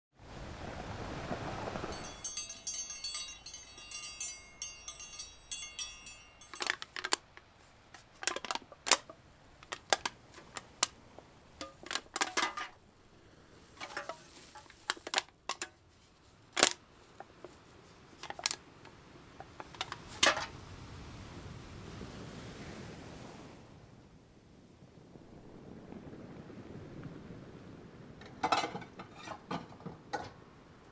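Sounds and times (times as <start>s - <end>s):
wash of noise: 0.2s - 3.8s
faint hiss: 0.2s - 30.9s
high-pitched rattle: 1.9s - 10.8s
sharp irregular clicks and clinks: 1.9s - 11.0s, 11.6s - 12.7s, 14.9s - 15.7s, 16.6s - 16.8s, 18.2s - 18.6s, 19.4s - 20.1s.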